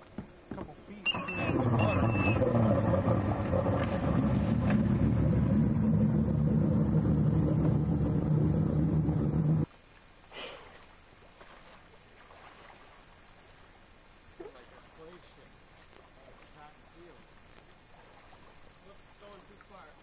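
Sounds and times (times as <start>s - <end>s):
engine running: 1.1s - 9.7s.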